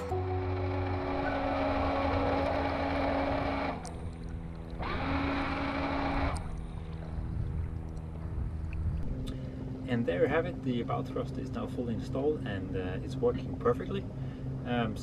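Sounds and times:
water churning: 0.0 - 9.0
bow thruster motor humming: 0.0 - 12.2
rising whine: 0.0 - 14.8.

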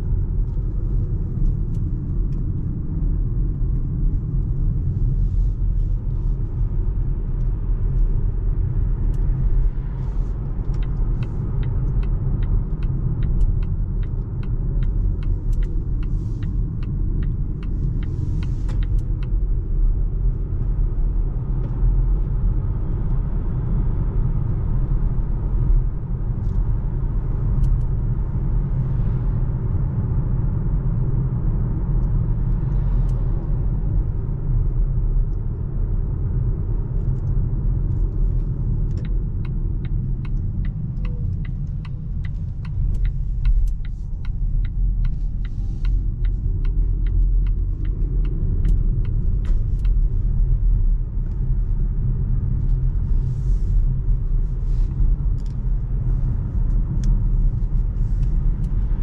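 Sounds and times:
road and tyre rumble: 0.0 - 59.0
regular ticking: 38.9 - 50.5.

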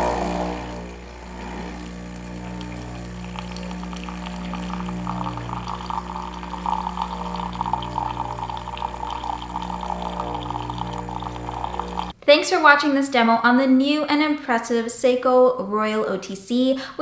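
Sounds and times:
pump humming: 0.0 - 12.2
water trickling into a mug: 0.3 - 12.2.

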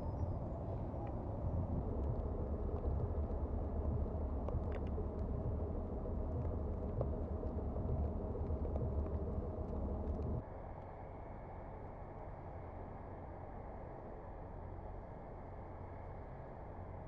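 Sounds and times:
blizzard wind buffeting microphone: 0.0 - 10.4.

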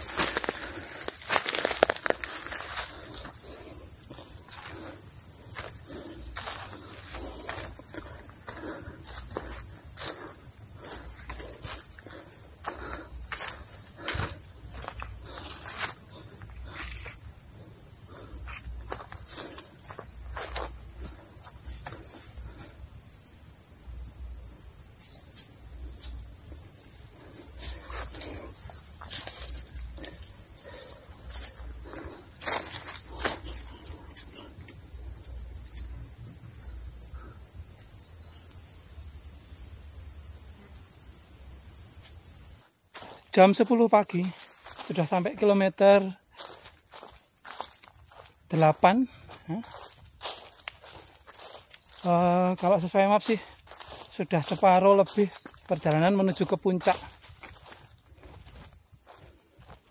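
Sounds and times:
footsteps on leaves: 0.0 - 17.1, 18.1 - 22.5, 27.2 - 34.5, 42.9 - 59.9
cicadas droning: 0.0 - 59.9.

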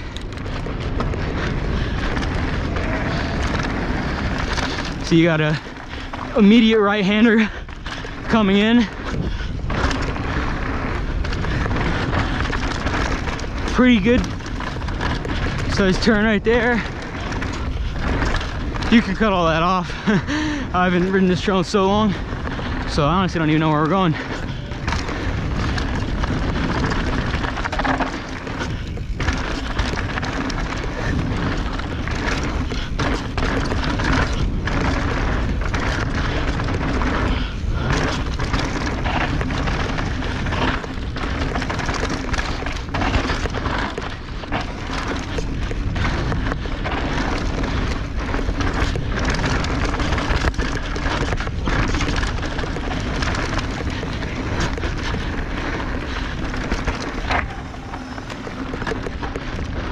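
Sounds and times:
bike knocking and rattling: 0.0 - 59.9
wind and tyre noise: 0.0 - 59.9.

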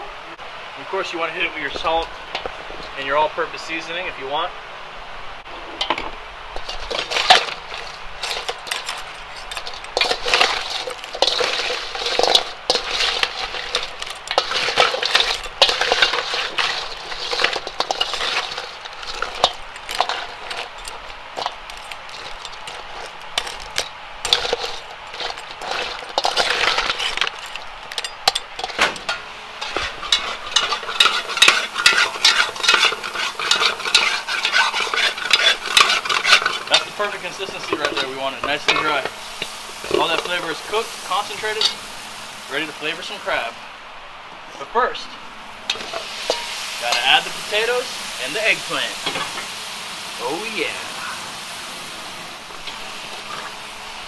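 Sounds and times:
crab shells knocking together: 6.6 - 29.1
metal spoon scraping steel bowl: 6.6 - 39.1
spoon scraping metal pot: 6.6 - 40.4.

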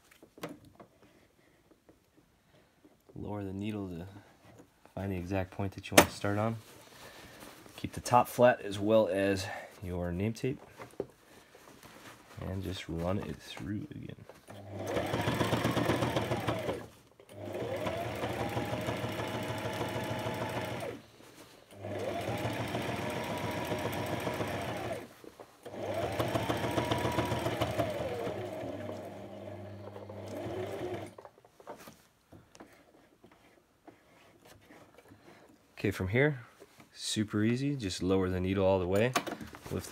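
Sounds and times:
electric sewing machine stitching: 14.5 - 21.0, 21.7 - 31.2.

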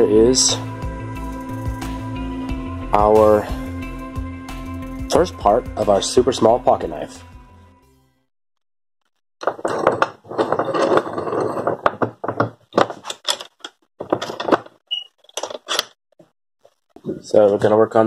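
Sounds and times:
bench vise metal rattle: 9.4 - 16.0
vise handle knocks and clicks: 11.8 - 14.7.

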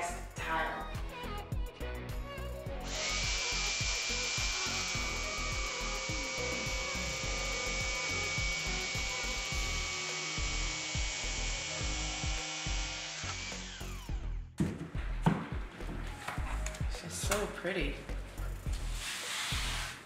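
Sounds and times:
jigsaw cutting vinyl tile: 2.9 - 14.0.

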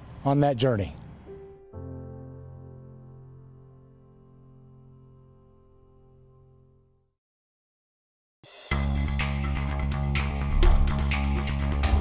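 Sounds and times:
loud music with bass and drums: 8.6 - 12.0.

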